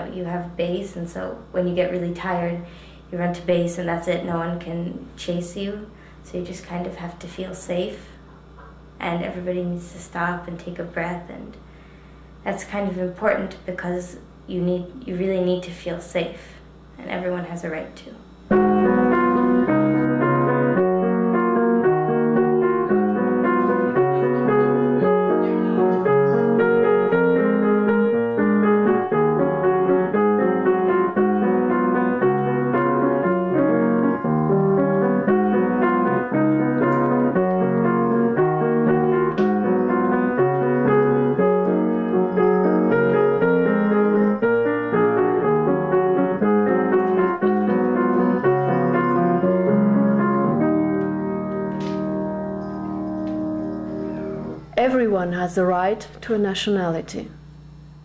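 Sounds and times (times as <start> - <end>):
piano music: 18.5 - 56.0.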